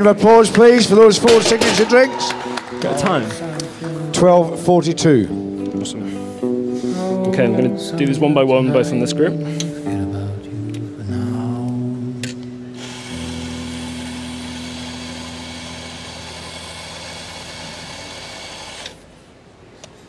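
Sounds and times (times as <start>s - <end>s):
electric coffee grinder running: 12.8s - 18.9s.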